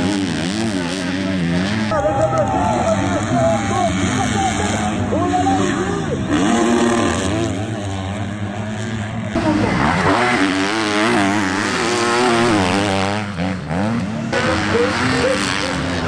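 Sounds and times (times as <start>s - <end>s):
motocross bikes revving: 0.0s - 16.0s.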